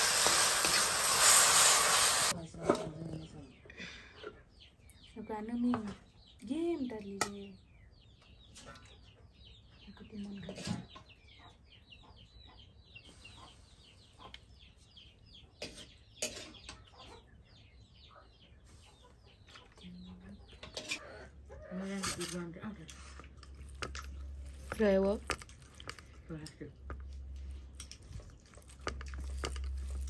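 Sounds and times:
chickens clucking: 8.5s - 24.4s.

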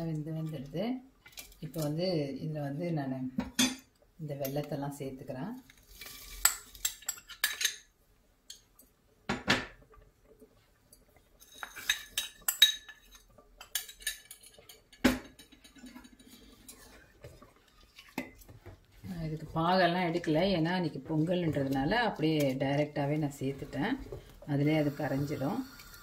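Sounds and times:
knock on pot: 9.3s - 9.8s.

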